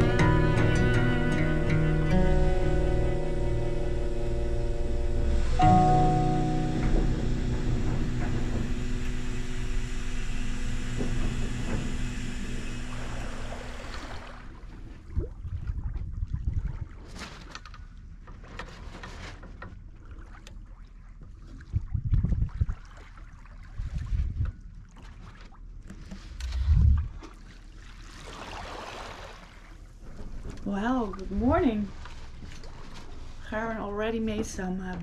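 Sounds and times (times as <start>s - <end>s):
sustained music notes: 0.0s - 12.9s
water sloshing: 5.0s - 35.0s
gusty wind: 26.4s - 27.2s.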